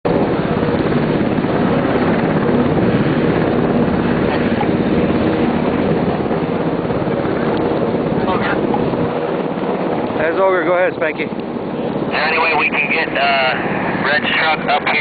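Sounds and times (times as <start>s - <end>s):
helicopter rotor beating: 0.1s - 15.0s.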